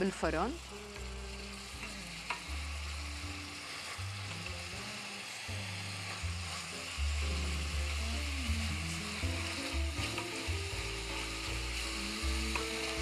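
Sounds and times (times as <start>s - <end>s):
onion sizzling in a pot: 0.0s - 13.0s.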